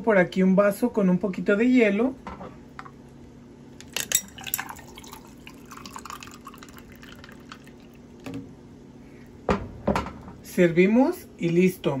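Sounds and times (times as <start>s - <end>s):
ice clinking in glass: 3.9s - 7.6s
liquid pouring over ice: 4.0s - 8.2s.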